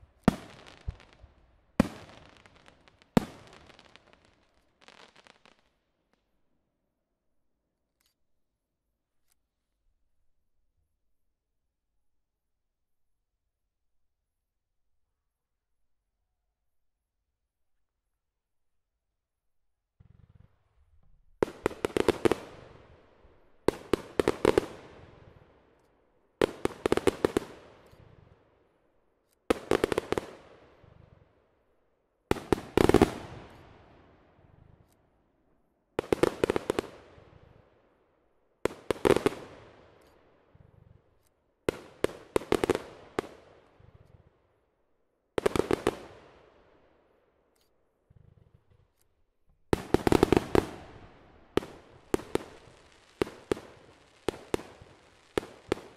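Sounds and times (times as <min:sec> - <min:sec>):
fireworks bursting: 0:00.0 - 0:05.7, 0:21.4 - 0:23.0, 0:23.6 - 0:25.4, 0:26.4 - 0:28.2, 0:29.5 - 0:31.2, 0:32.3 - 0:34.1, 0:36.0 - 0:37.6, 0:38.7 - 0:40.1, 0:41.7 - 0:44.0, 0:45.4 - 0:46.4, 0:49.7 - 0:55.9.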